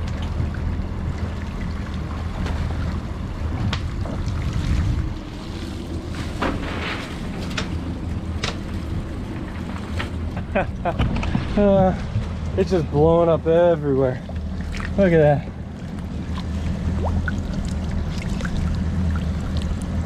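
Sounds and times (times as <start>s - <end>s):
water splashing and dripping: 0.0s - 10.3s, 14.2s - 15.1s, 15.7s - 20.0s
outboard motors idling: 0.0s - 20.0s.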